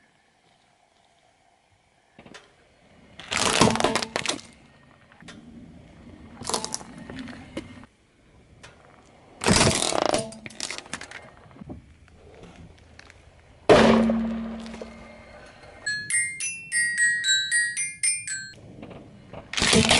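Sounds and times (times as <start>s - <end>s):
tyre crushing plastic toys: 3.2s - 4.5s, 9.4s - 11.3s, 19.5s - 19.9s.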